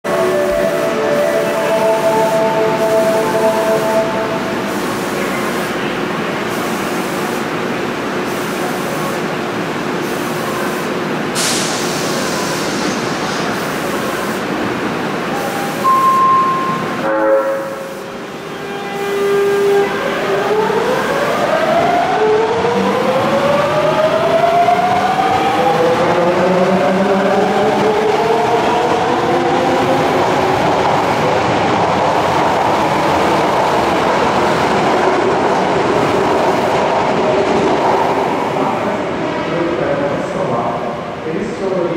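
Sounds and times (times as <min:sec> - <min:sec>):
train horn blasts: 0:00.1 - 0:04.5, 0:15.8 - 0:20.1
hiss of air: 0:10.0 - 0:14.5.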